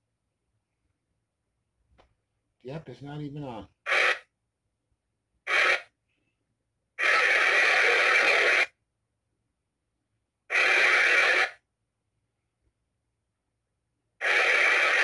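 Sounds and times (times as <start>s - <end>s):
hissing radio static: 3.8s - 4.2s, 5.5s - 5.9s, 7.0s - 8.7s, 10.5s - 11.6s, 14.2s - 15.0s.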